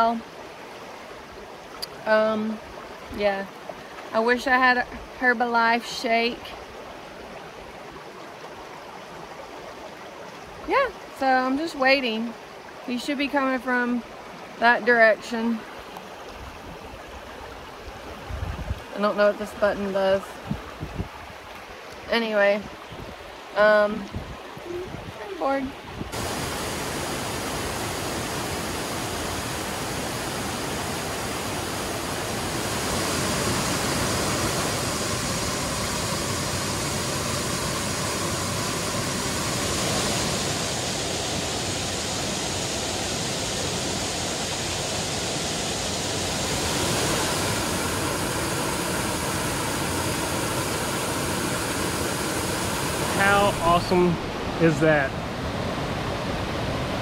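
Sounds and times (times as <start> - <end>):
waterfall rushing: 24.6 - 57.0.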